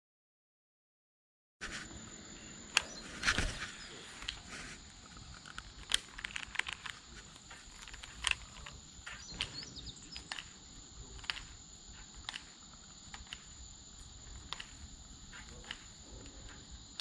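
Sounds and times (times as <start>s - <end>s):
faint chirps: 1.7s - 17.0s
high-pitched insect drone: 1.8s - 17.0s.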